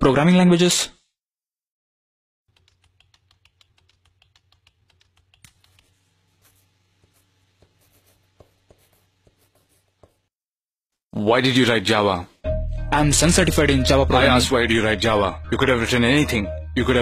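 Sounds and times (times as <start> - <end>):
faint laptop keys tapping: 2.5 - 10.3.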